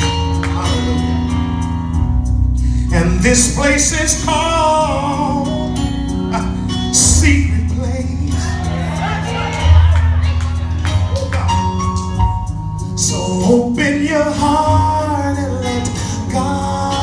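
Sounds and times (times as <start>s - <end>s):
band with steady bass line: 0.0s - 17.0s
group of singers: 7.9s - 11.8s.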